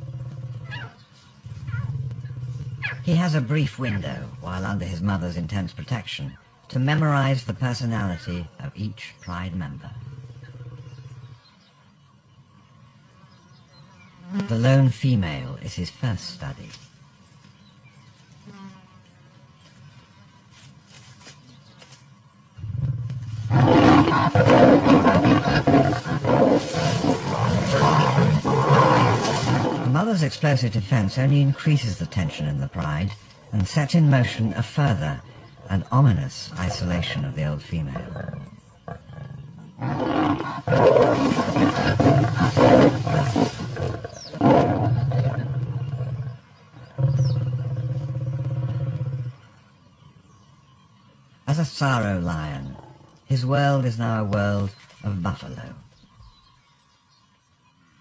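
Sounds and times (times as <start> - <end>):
lions snarling: 0.0 - 3.2, 22.6 - 30.3, 31.1 - 49.4
lion growling: 0.0 - 4.2, 9.8 - 11.6, 22.6 - 49.5.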